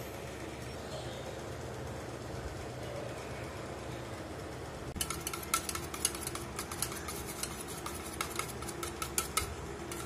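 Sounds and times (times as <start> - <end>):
low steady hum: 0.0 - 10.0
whisk clinking in metal bowl: 5.0 - 10.0.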